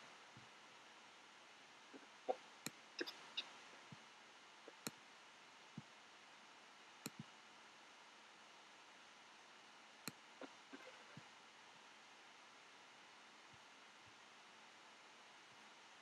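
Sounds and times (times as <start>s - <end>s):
faint steady hiss: 0.0s - 16.0s
computer mouse clicks: 2.3s - 3.9s, 7.0s - 7.3s, 10.0s - 11.2s.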